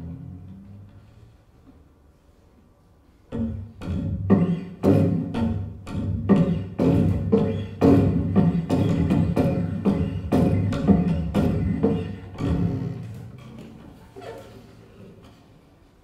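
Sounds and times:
cello percussive strokes: 3.3 - 13.8.

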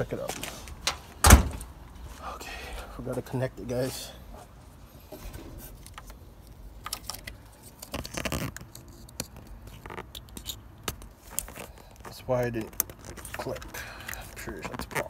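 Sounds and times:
plastic connectors clicking and scraping: 5.8 - 15.0.

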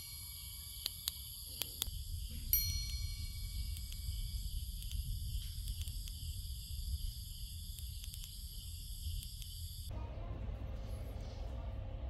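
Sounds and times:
insects chirring: 0.0 - 9.9
constant low rumble: 0.0 - 12.0.

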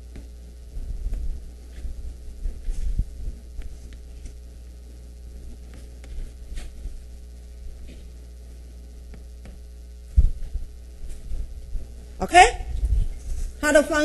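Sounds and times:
low electrical hum: 0.0 - 14.0
dull low thump: 10.1 - 10.7.

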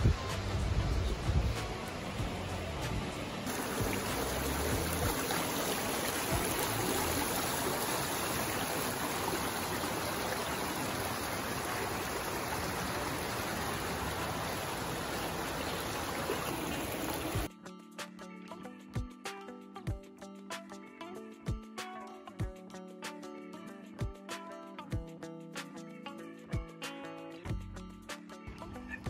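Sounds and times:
stream water running over rocks: 0.0 - 17.5.

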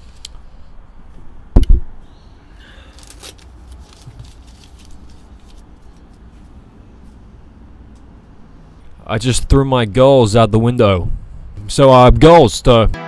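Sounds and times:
soft rustle: 3.0 - 7.3.

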